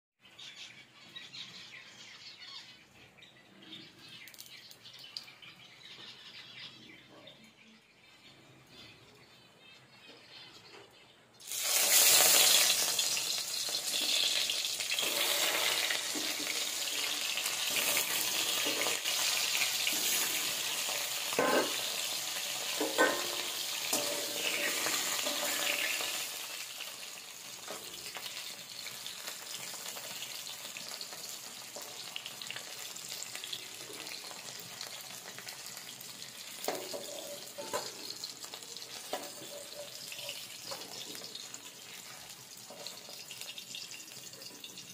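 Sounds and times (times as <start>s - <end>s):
fish sizzling in hot oil: 11.4s - 44.9s
metal spatula knocking pan: 22.8s - 25.9s.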